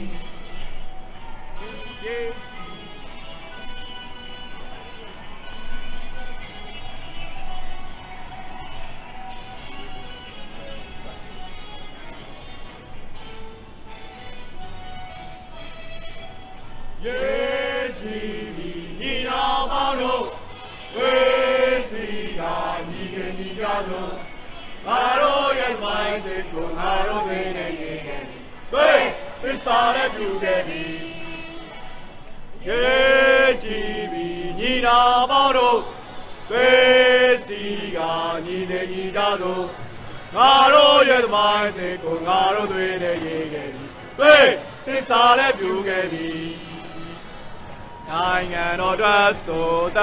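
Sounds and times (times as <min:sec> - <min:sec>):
crowd chanting in unison: 0:17.0 - 0:31.4, 0:32.5 - 0:50.0.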